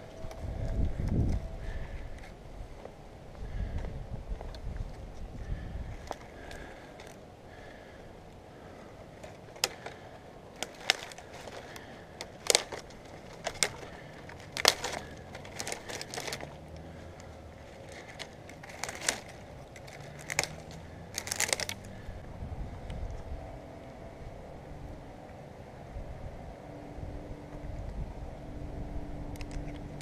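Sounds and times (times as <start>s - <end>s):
dry twigs snapping: 4.5s - 7.8s, 9.2s - 22.2s.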